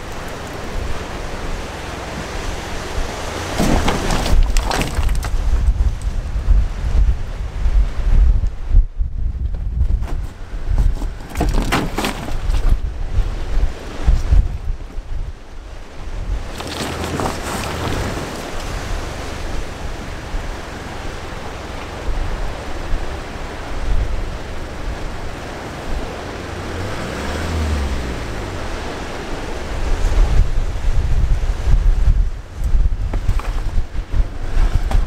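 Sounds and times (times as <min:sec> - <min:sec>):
surf: 0:00.0 - 0:08.7, 0:09.7 - 0:35.0
wind buffeting microphone: 0:00.0 - 0:35.0
vehicle engine running: 0:16.1 - 0:31.4.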